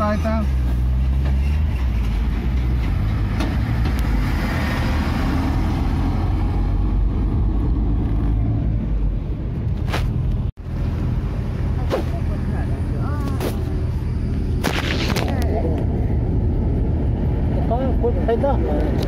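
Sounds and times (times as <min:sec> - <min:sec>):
car engine rumble from cabin: 0:06.2 - 0:19.0.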